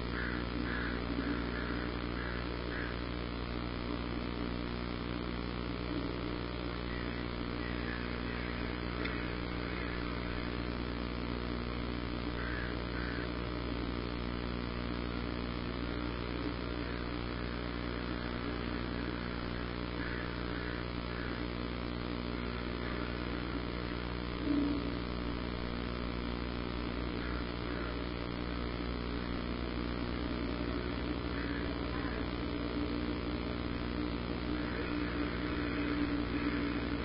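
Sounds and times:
steady low hum: 0.0 - 37.0
faint short bird calls: 0.1 - 3.1, 6.8 - 10.7, 12.3 - 13.4, 16.0 - 21.5, 27.2 - 28.2, 30.2 - 33.4, 34.0 - 37.0
faint hiss: 13.8 - 37.0.

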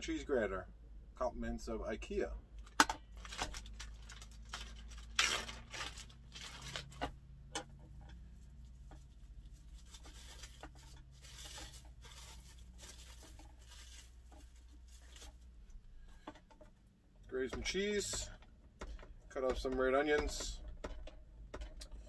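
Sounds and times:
plastic bag crinkling: 3.1 - 7.2, 8.4 - 15.6.

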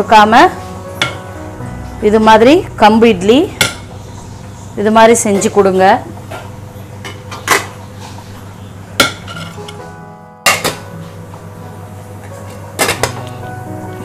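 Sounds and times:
background music: 0.0 - 6.1, 9.0 - 14.0
metal plates clanking in pot: 9.0 - 9.8, 10.4 - 10.9, 12.8 - 13.3.

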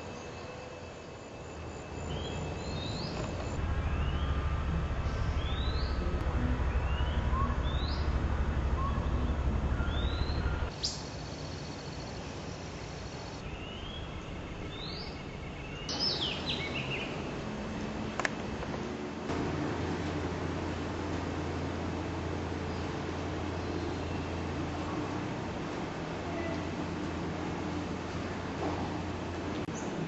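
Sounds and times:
low rumble: 3.5 - 10.7, 13.4 - 18.1
songbird whistling: 6.7 - 11.1.

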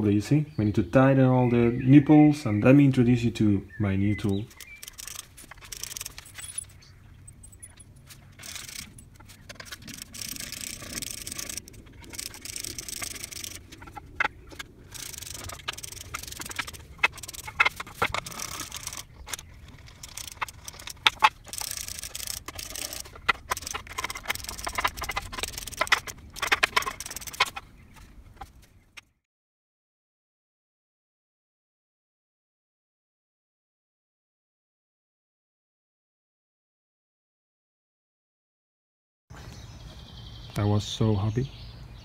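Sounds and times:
screwdriver scraping and grinding: 4.4 - 29.1.

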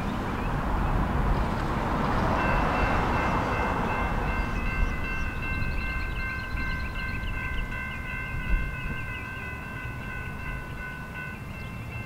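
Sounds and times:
distant train rumbling: 0.0 - 12.0
crossing signal bell ringing: 2.4 - 12.0.

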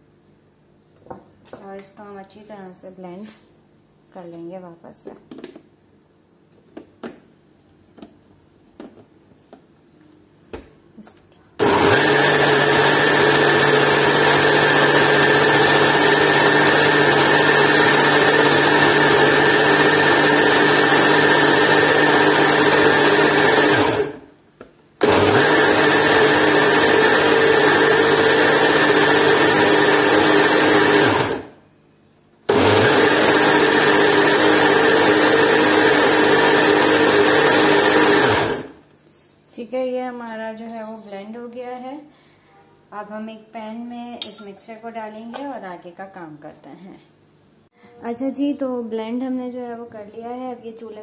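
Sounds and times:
blender whirring: 11.6 - 24.3, 25.0 - 31.6, 32.5 - 38.8.

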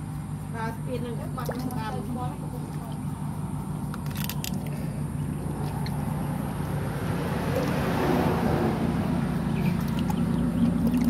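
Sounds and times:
low motor hum: 0.0 - 11.0
water sloshing in a tub: 1.0 - 6.1, 9.4 - 11.0.

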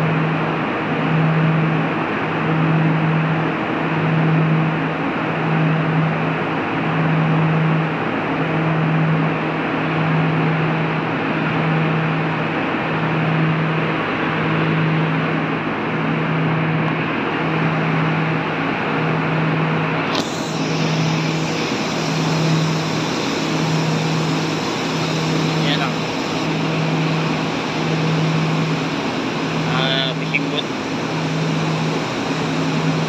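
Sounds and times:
low pulsing hum: 13.0 - 33.0
ship machinery rushing noise: 19.9 - 33.0.

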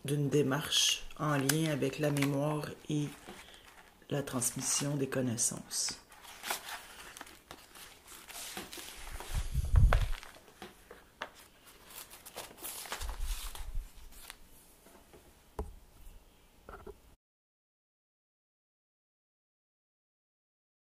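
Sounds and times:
paper pages rustling: 1.1 - 5.0, 5.8 - 14.5
book thumps: 8.4 - 11.4.

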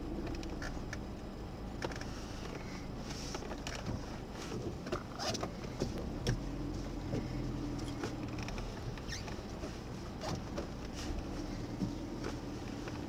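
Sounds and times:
car engine humming: 0.0 - 13.0
raindrops tapping on car roof: 3.3 - 11.0.

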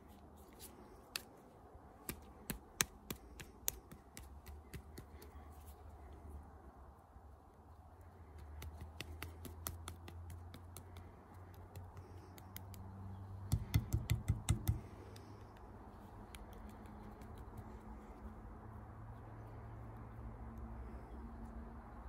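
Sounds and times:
clay kneading squishes: 0.0 - 6.3, 7.6 - 18.4
low pats on clay: 2.0 - 5.5, 8.4 - 17.7.

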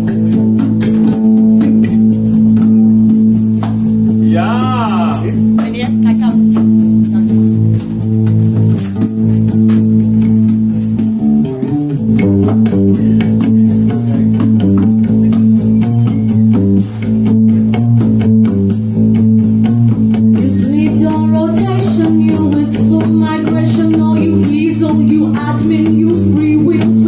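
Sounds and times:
electric bass guitar: 0.0 - 27.0
guitar: 0.0 - 27.0
woman singing: 20.4 - 27.0.

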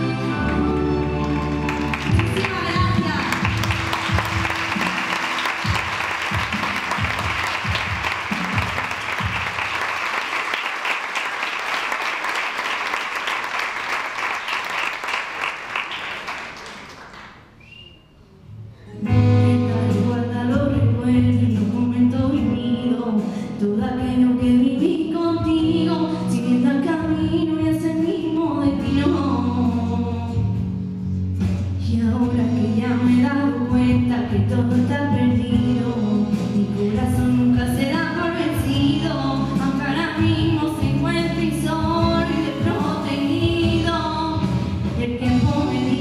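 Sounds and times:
musical backing track: 0.0 - 17.6, 18.2 - 46.0
audience applause: 1.1 - 17.5
young woman singing: 19.3 - 30.4, 31.8 - 46.0.

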